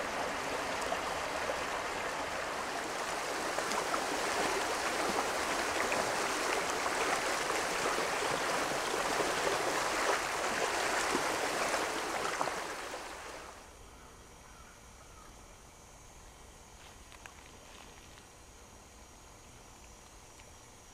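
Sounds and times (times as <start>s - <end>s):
creek water rushing: 0.0s - 13.6s.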